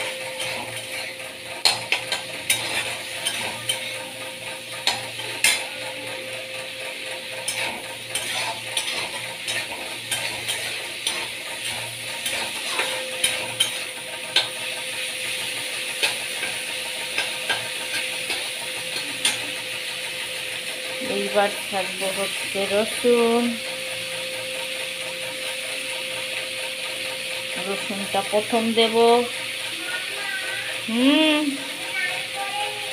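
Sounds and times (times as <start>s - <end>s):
metal spatula scraping pan: 0.0s - 6.0s, 6.7s - 14.7s, 15.3s - 19.6s
fish sizzling in oil: 0.0s - 32.9s.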